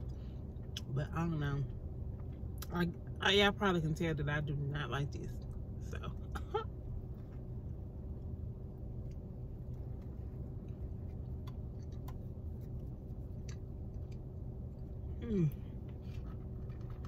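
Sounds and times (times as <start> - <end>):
car cabin hum: 0.0 - 17.0
person chewing: 9.0 - 17.0.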